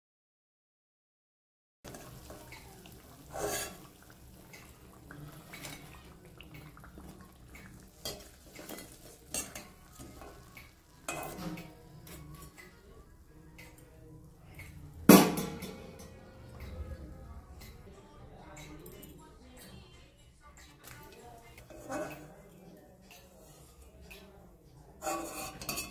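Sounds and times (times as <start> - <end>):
metal spoon scraping metal pan: 3.3 - 3.8, 25.0 - 25.9.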